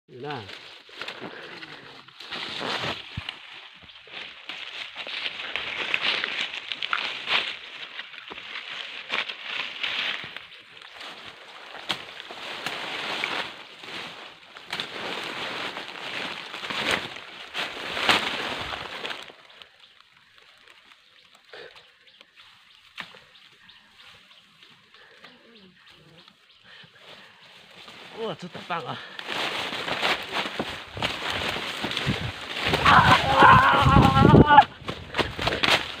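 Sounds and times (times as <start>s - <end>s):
crunching of dry leaves: 0.1s - 36.0s
rustling of leaves and branches: 0.1s - 36.0s
twigs snapping: 0.5s - 23.7s, 29.1s - 36.0s.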